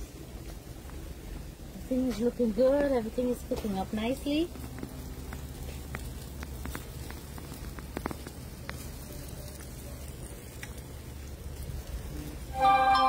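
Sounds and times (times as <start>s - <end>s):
wood fire crackling: 0.0s - 13.0s
sharp pops: 4.5s - 10.9s.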